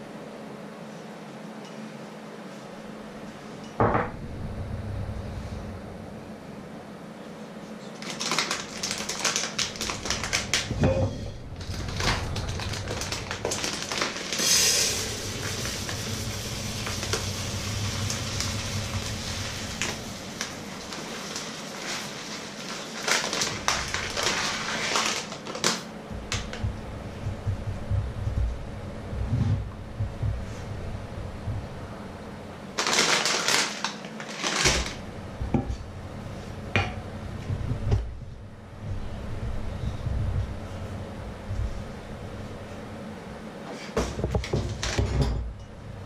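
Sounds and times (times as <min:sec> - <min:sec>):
low steady hum: 0:00.0 - 0:33.6, 0:34.2 - 0:46.0
plastic bag rustling: 0:07.9 - 0:27.3, 0:32.6 - 0:35.1
grains pouring into plastic bowl: 0:11.6 - 0:25.8.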